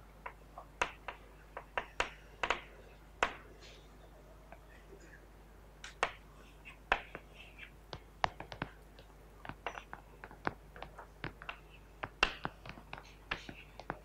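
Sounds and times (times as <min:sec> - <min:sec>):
faint room hum: 0:00.0 - 0:14.0
chalk tapping on chalkboard: 0:00.8 - 0:03.4, 0:06.9 - 0:14.0.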